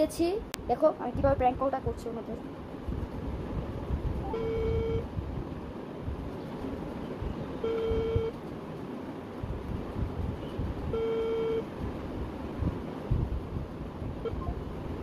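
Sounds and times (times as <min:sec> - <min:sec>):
low background rumble: 0:00.0 - 0:15.0
phone ringback beeps: 0:04.2 - 0:05.0, 0:07.6 - 0:08.3, 0:11.0 - 0:11.6.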